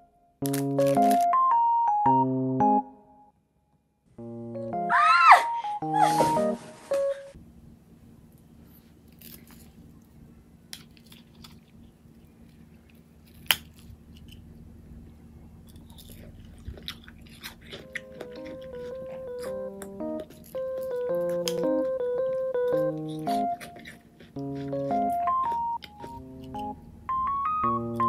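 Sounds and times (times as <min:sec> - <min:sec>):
light background music: 0:04.2 - 0:07.4, 0:17.8 - 0:28.0
chewing: 0:09.1 - 0:14.5, 0:15.6 - 0:26.8.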